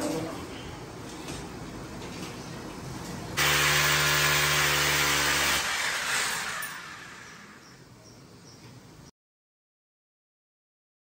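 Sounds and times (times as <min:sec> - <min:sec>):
electric power tool running: 0:03.4 - 0:07.6.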